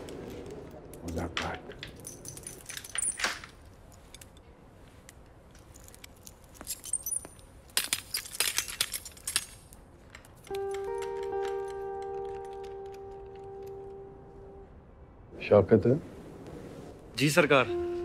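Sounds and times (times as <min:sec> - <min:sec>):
keys and metal gate rattling: 0:01.7 - 0:04.4, 0:05.5 - 0:13.7.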